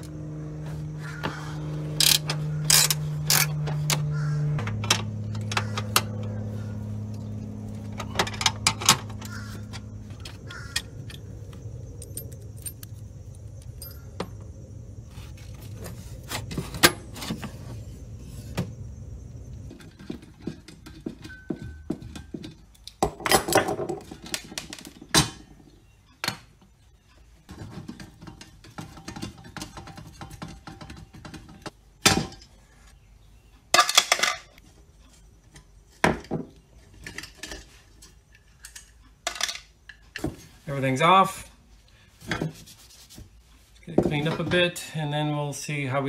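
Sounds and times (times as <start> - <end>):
low steady hum: 0.0 - 24.4
metal tools and bolts clinking: 1.9 - 6.4, 7.0 - 14.5, 19.6 - 26.4, 33.7 - 34.6, 35.5 - 40.6.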